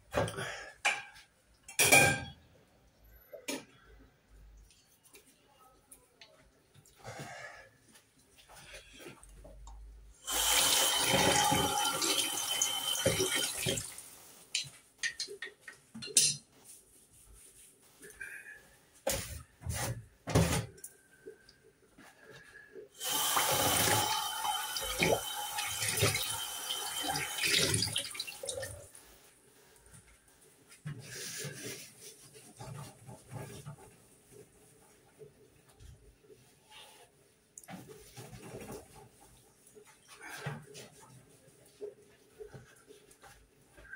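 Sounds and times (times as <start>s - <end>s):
tap running into sink: 10.5s - 13.9s, 23.1s - 28.6s
utensils knocking and clattering: 14.6s - 16.5s.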